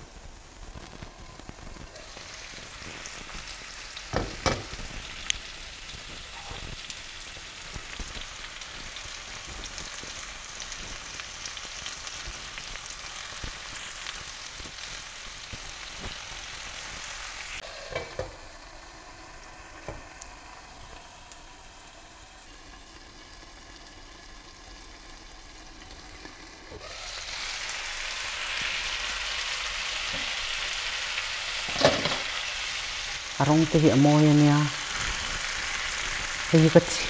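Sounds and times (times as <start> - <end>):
chicken sizzling in oil: 0.0 - 37.0
glass lid clunk: 4.1 - 4.7, 17.9 - 18.4, 31.7 - 32.2
pan lid and tongs clattering: 17.8 - 18.4, 31.7 - 32.4.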